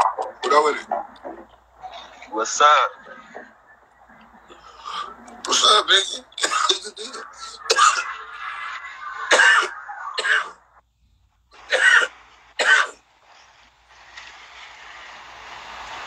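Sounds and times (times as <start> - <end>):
man coughing: 4.5 - 10.6.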